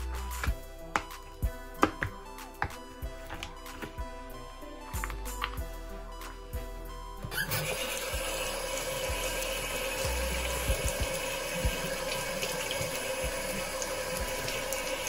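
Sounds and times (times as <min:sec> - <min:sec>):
tap water running into sink: 0:07.3 - 0:15.0.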